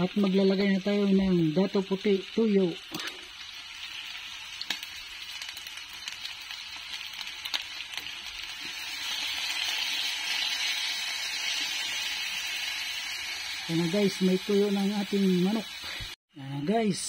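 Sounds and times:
chicken sizzling in a wok: 0.0 - 17.0.

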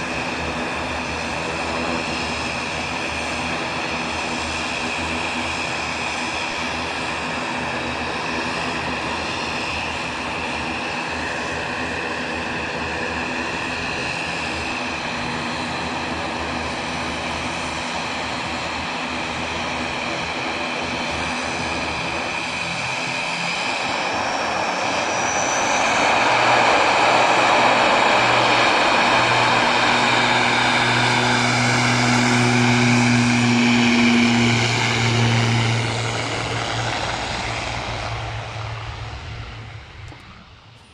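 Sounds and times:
propellers humming: 0.0 - 40.9
turboprop engines running: 0.0 - 40.9
engine rising whine: 21.8 - 40.9.

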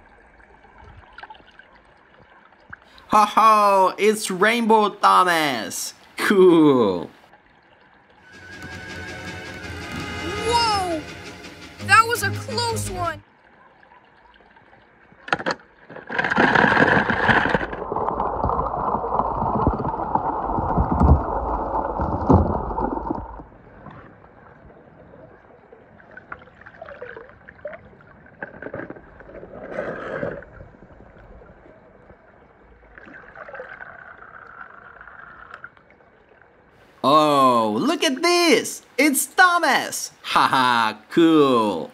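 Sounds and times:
pool water sloshing and gurgling: 0.0 - 3.1, 7.0 - 9.1, 13.2 - 37.0
water splashes: 0.0 - 41.9.

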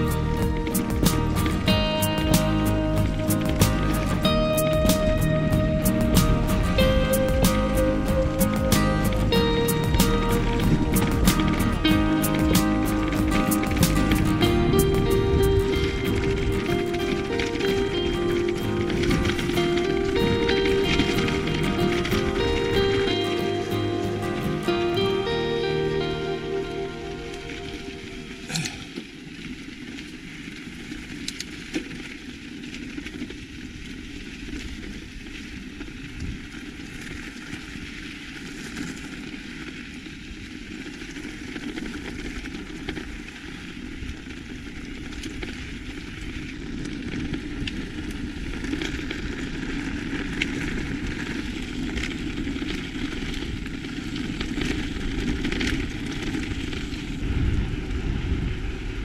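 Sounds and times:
tyres crunching over gravel: 0.0 - 25.4, 36.6 - 57.7
rush of riding noise: 0.0 - 59.0
bike clicks and rattles: 8.4 - 23.7, 28.5 - 59.0.

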